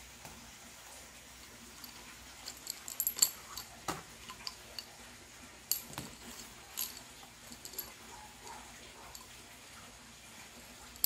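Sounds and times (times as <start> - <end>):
metal fittings knocking together: 5.7 - 8.0.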